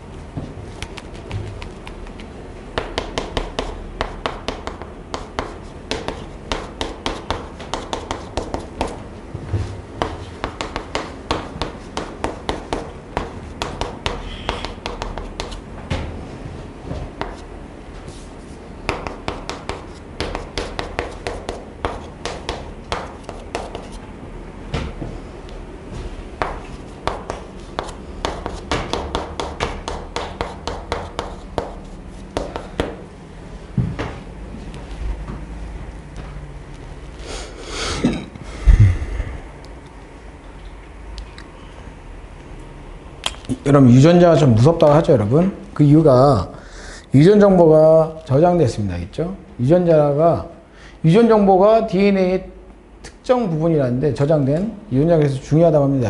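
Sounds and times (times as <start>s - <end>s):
chalk tapping and scraping on chalkboard: 0.7s - 15.7s, 17.0s - 24.0s, 26.0s - 33.0s.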